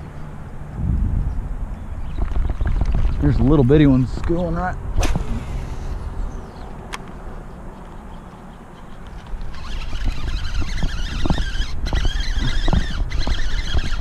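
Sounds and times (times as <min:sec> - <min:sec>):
low rumble: 0:00.7 - 0:06.5
fishing reel whirring: 0:09.4 - 0:14.0.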